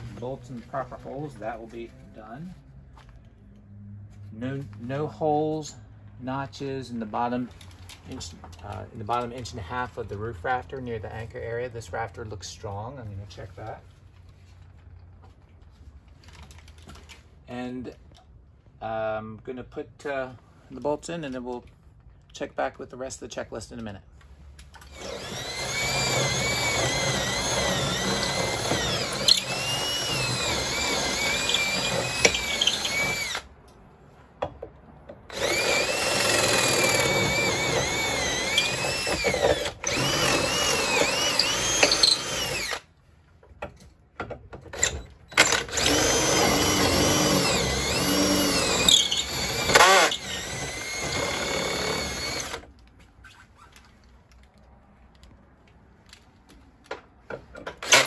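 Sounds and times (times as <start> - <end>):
cordless drill boring through wood: 24.9 - 33.5, 35.3 - 42.9, 44.8 - 52.7, 57.7 - 58.0.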